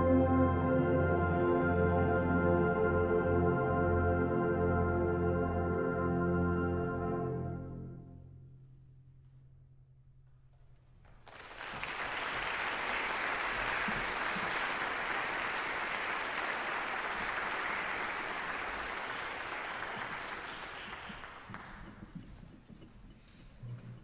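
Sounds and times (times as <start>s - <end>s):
audience applauding: 11.0s - 22.8s.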